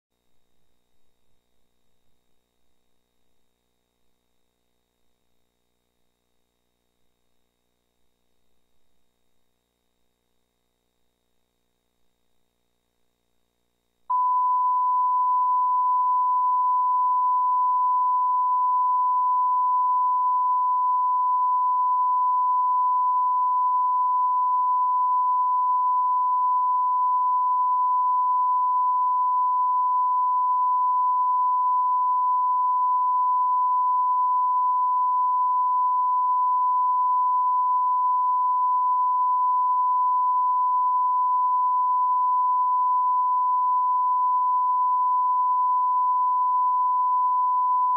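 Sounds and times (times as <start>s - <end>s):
steady reference test tone: 14.1s - 47.9s.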